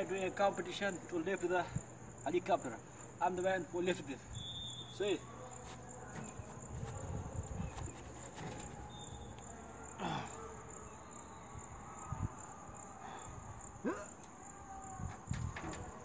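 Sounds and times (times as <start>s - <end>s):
insects chirring: 0.0s - 16.0s.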